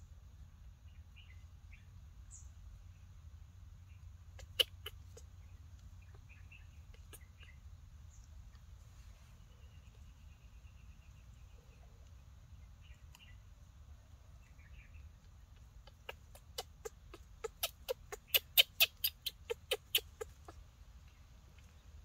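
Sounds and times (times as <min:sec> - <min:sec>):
baby monkey sharp cries: 0:04.3 - 0:05.3, 0:15.8 - 0:20.6.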